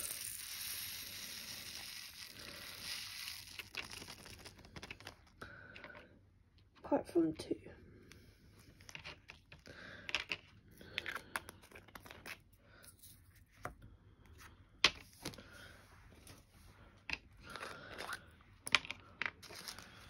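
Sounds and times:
plastic bag tearing: 1.2s - 5.0s.

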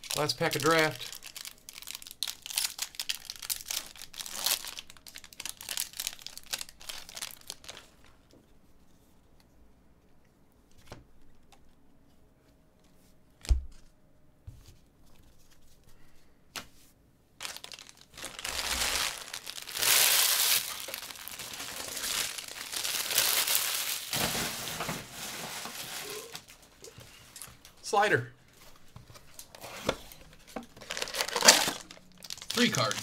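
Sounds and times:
plastic wrapper crinkling and tearing: 0.0s - 8.2s, 17.4s - 26.8s, 30.7s - 33.0s.

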